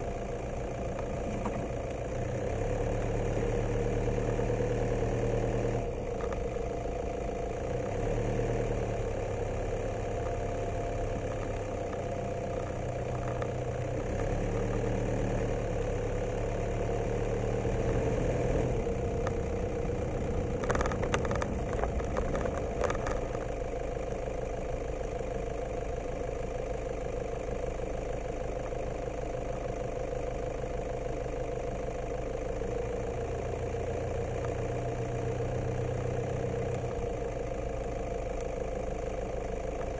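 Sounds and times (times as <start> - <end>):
clicks and rattles: 20.4 - 23.6.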